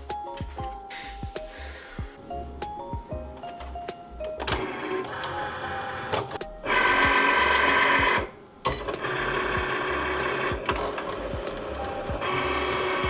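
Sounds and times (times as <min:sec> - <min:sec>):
cutting machine motors whirring: 0:04.4 - 0:13.0.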